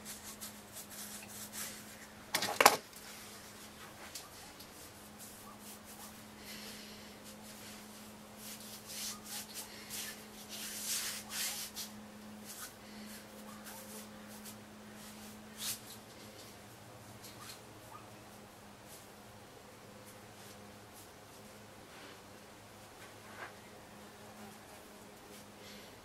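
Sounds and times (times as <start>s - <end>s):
faint rubbing and rustling: 0.0s - 19.2s
steady low hum: 0.0s - 26.0s.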